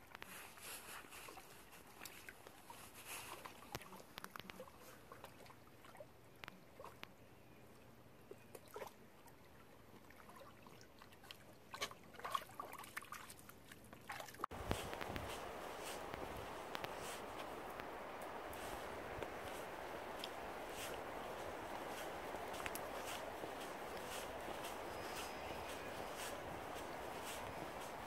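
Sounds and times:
dogs splashing in shallow water: 0:09.9 - 0:28.0.

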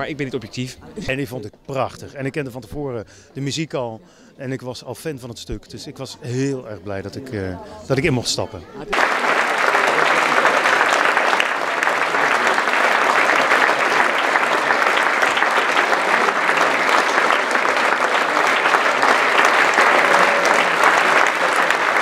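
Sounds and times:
audience applauding: 0:08.9 - 0:22.0.

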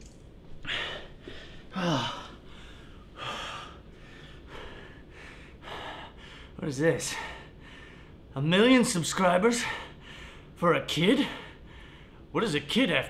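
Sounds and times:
man breathing hard: 0:00.7 - 0:08.3, 0:09.6 - 0:10.6, 0:11.2 - 0:12.3.

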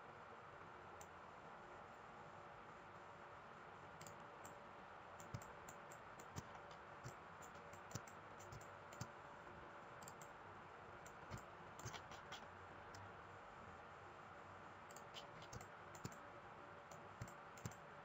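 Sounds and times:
computer mouse clicks: 0:04.0 - 0:04.6, 0:05.2 - 0:09.1, 0:10.0 - 0:10.4, 0:11.0 - 0:13.1, 0:14.9 - 0:16.2, 0:16.9 - 0:17.8.

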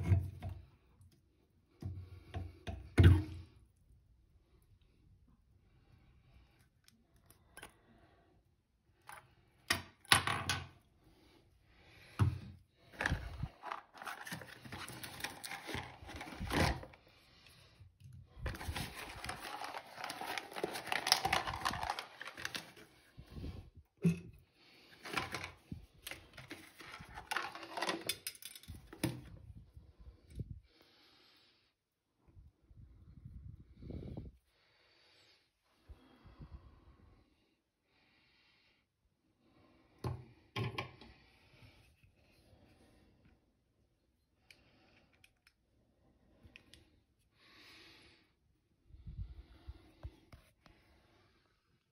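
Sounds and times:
cardboard and paper rustling: 0:12.9 - 0:17.0, 0:18.4 - 0:23.2, 0:25.0 - 0:28.1.

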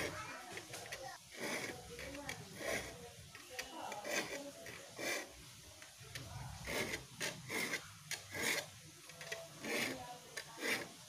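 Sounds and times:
file rasping on saw teeth: 0:01.3 - 0:03.0, 0:03.9 - 0:05.4, 0:06.6 - 0:08.7, 0:09.6 - 0:11.0.

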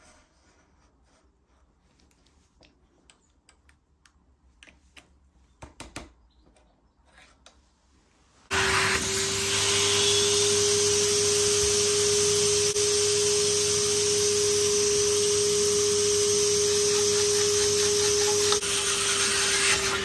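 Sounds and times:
clicks and taps of handling: 0:02.0 - 0:06.8
vacuum cleaner running: 0:08.5 - 0:20.0.

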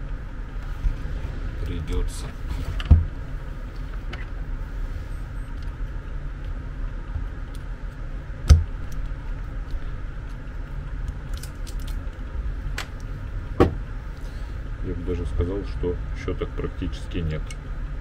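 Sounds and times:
steady low hum: 0:00.0 - 0:18.0
metal parts clicking and scraping: 0:11.2 - 0:12.0
low knock: 0:13.6 - 0:13.8.

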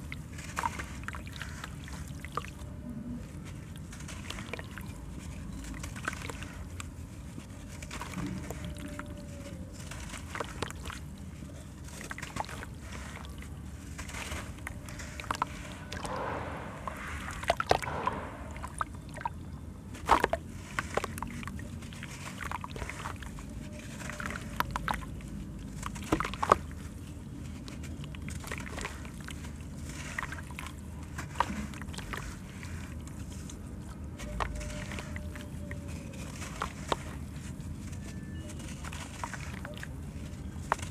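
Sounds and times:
splashes and drips: 0:00.0 - 0:02.6, 0:03.3 - 0:08.9, 0:16.8 - 0:37.9, 0:38.7 - 0:40.9
water sloshing: 0:00.0 - 0:02.6, 0:03.2 - 0:40.9
sharp crunches of crumbling sand: 0:14.0 - 0:19.3.

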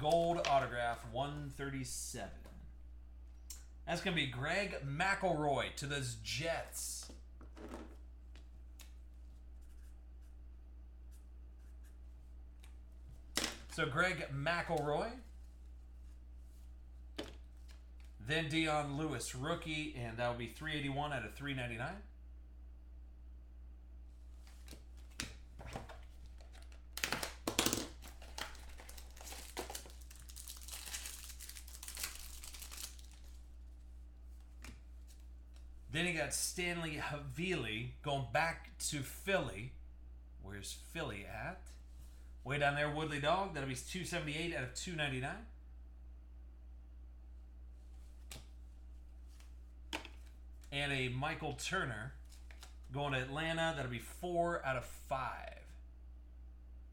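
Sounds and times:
wrapper tearing and crinkling: 0:26.5 - 0:33.4.

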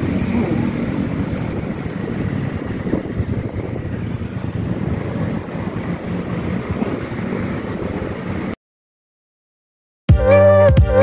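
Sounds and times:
motorcycle engine running: 0:00.0 - 0:08.5
wind rushing over microphone: 0:00.0 - 0:08.6.

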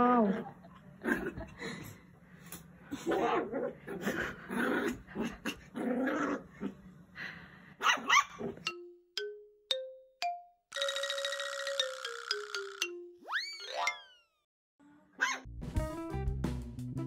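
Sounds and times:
puppy growling and yipping: 0:03.0 - 0:06.8, 0:07.8 - 0:08.7
bright musical chime: 0:08.7 - 0:14.4
plinking notes climbing: 0:08.7 - 0:14.4.

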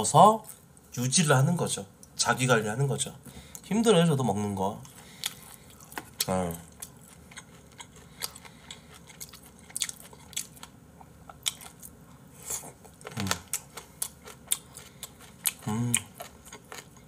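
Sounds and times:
crunchy chewing: 0:04.8 - 0:17.0
person humming: 0:13.1 - 0:13.5, 0:15.6 - 0:16.1.

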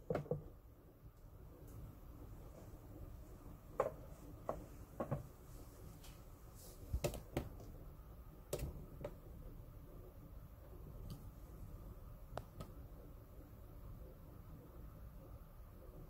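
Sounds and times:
low room tone: 0:00.0 - 0:16.0.

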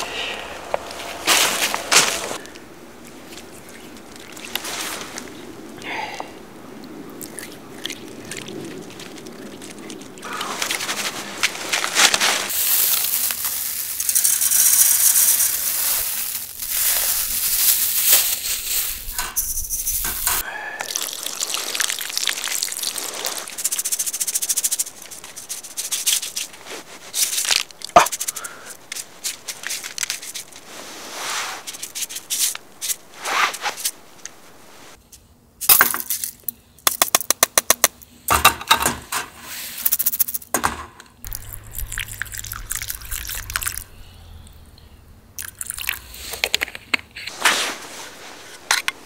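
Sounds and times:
rice splashing and swishing: 0:03.2 - 0:05.4, 0:07.7 - 0:19.2, 0:20.3 - 0:24.7, 0:30.6 - 0:31.7
water trickling onto rice: 0:07.3 - 0:11.6, 0:12.5 - 0:19.1, 0:20.3 - 0:27.3, 0:41.3 - 0:43.9
water poured into cup: 0:20.8 - 0:23.6, 0:41.3 - 0:43.9, 0:45.4 - 0:46.2.

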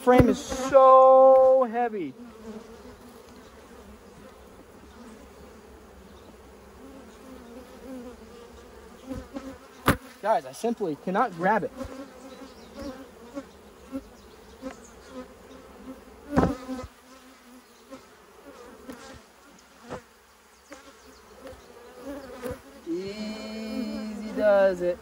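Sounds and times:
honey frame knocking: 0:00.0 - 0:01.6
close bee buzz: 0:00.0 - 0:25.0
honeybees buzzing: 0:00.0 - 0:25.0.

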